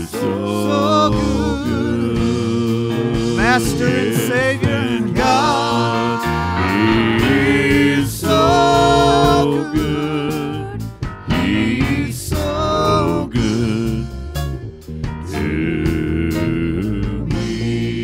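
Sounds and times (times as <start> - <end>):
gospel band playing: 0.0 - 18.0
singers singing chorus: 0.0 - 18.0.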